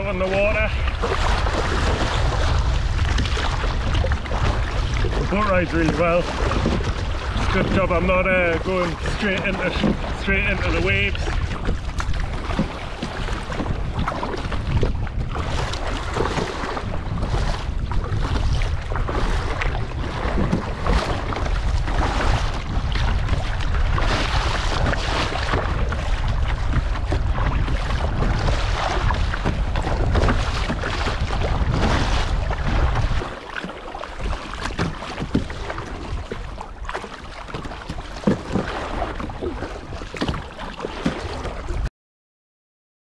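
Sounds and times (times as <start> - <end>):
sea water splashing: 0.0 - 41.9
wind buffeting microphone: 0.0 - 41.9.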